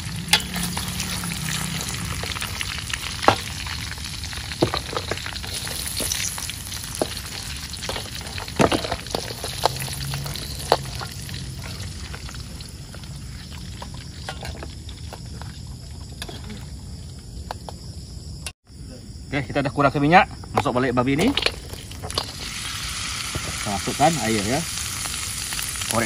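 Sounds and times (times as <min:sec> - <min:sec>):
meat sizzling in fat: 0:00.0 - 0:16.6, 0:21.2 - 0:26.0
metal ladle scraping pan: 0:04.6 - 0:12.4, 0:13.4 - 0:15.4.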